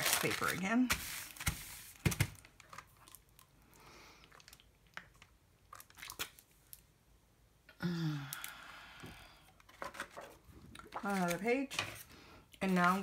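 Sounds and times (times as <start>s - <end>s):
wax paper crinkling: 0.0s - 3.2s, 12.6s - 13.0s.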